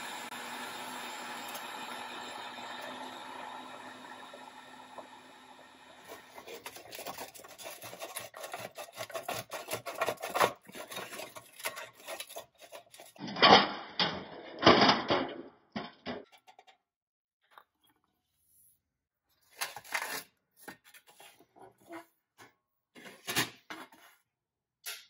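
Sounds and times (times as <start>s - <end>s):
heat gun humming: 0.0s - 7.0s
loud rasping scrapes: 6.0s - 13.2s
metal scraping and clicking: 6.3s - 13.3s.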